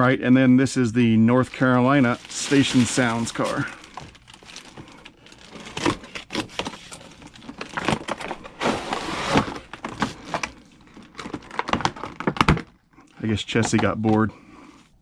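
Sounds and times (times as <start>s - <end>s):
cardboard packaging scraping: 1.4s - 12.7s.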